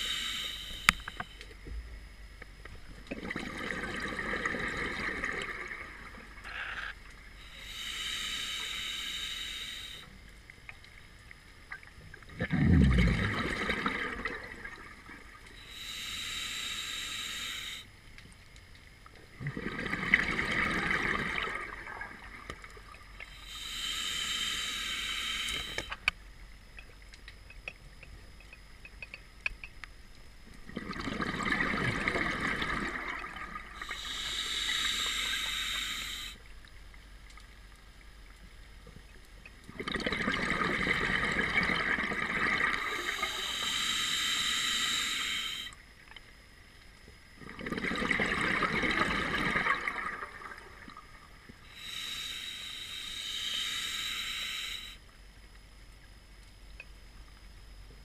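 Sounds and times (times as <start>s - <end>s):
scuba regulator breathing: 0.0s - 1.4s, 6.4s - 10.2s, 15.6s - 17.9s, 23.2s - 26.1s, 33.7s - 36.5s, 42.6s - 45.8s, 51.6s - 55.1s
exhaled bubbles rushing: 3.2s - 6.1s, 12.3s - 15.3s, 19.4s - 22.5s, 30.7s - 33.8s, 39.8s - 42.9s, 47.4s - 51.1s.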